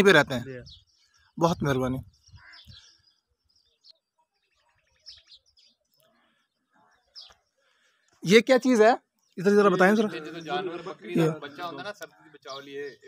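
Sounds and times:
faint bird chirps: 0.0s - 8.3s.

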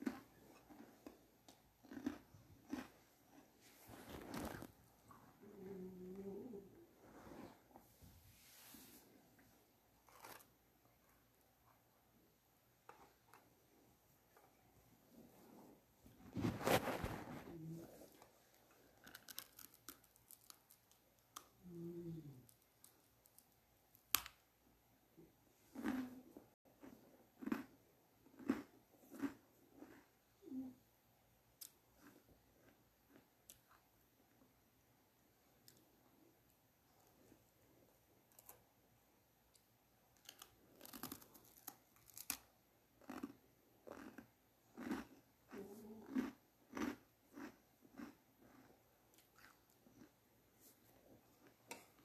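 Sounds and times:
chewing with soft mouth sounds: 0.0s - 3.6s, 43.1s - 52.0s
crunchy chewing of bread: 0.0s - 5.5s, 10.0s - 11.9s, 16.2s - 23.5s, 25.7s - 30.8s, 31.6s - 34.4s, 40.2s - 52.0s
bread being torn and bitten: 19.0s - 21.6s, 40.2s - 43.3s
person humming: 21.6s - 22.5s.

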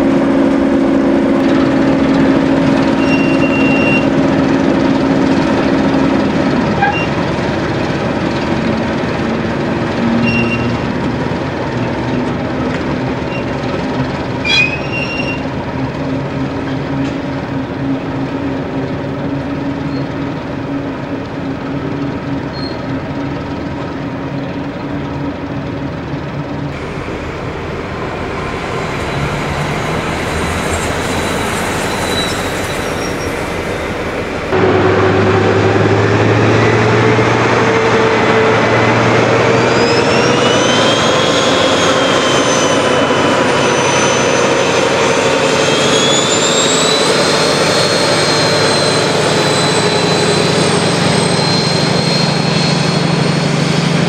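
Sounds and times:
low machine note: 0.0s - 32.0s, 33.5s - 39.7s
train wheels on rails: 0.0s - 54.0s
high wheel squeal: 0.3s - 24.9s, 28.1s - 54.0s.

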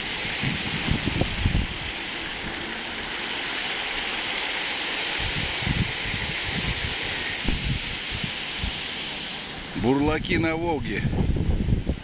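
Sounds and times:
wind on microphone: 0.0s - 2.7s, 5.1s - 12.0s
fountain water splashing: 0.0s - 10.9s.

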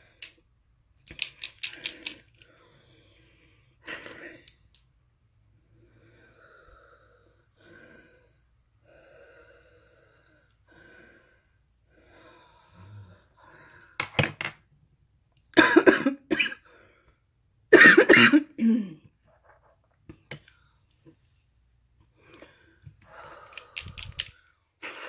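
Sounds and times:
coughing: 15.5s - 16.6s, 17.7s - 19.1s.

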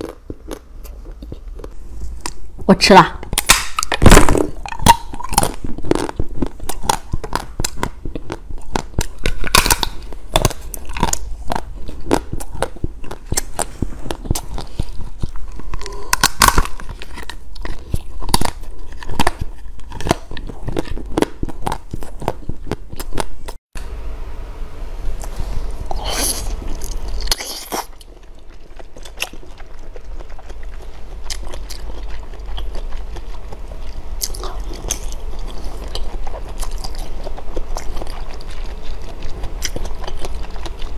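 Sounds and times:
crunching and chewing chocolate: 0.0s - 23.6s, 25.8s - 40.9s
chocolate snapping: 3.2s - 23.6s.

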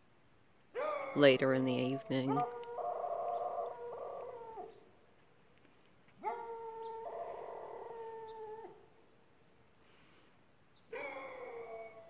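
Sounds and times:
distant dog howling: 0.8s - 4.9s, 6.2s - 8.9s, 10.9s - 12.0s.

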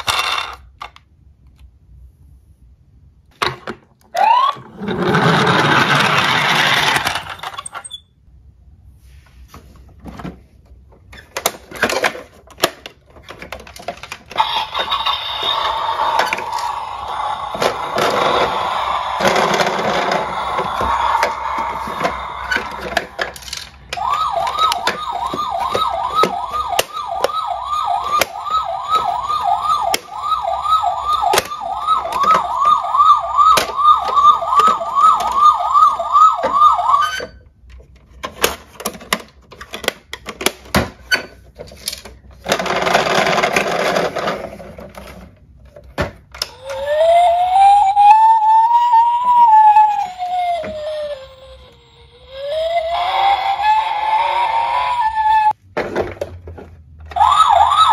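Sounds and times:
toy siren wail: 4.1s - 7.6s, 14.3s - 37.4s, 46.4s - 55.6s, 57.1s - 57.9s
toy siren yelping: 4.1s - 7.6s, 14.3s - 37.4s, 46.4s - 55.6s, 57.1s - 57.9s.

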